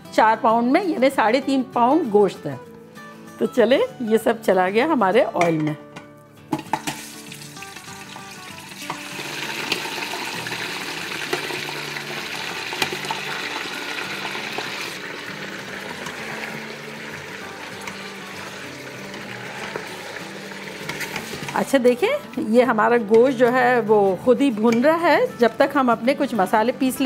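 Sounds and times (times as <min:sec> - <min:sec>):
meat sizzling in hot oil: 0:06.8 - 0:21.6.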